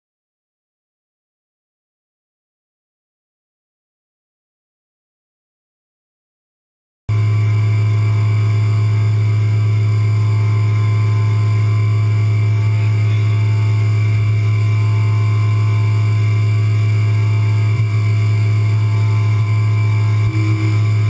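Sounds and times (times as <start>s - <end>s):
milling machine humming: 7.1s - 21.0s.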